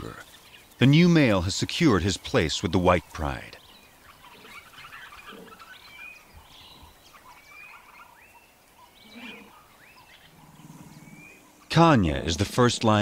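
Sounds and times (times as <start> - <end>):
birds whistling calls: 3.6 - 13.0.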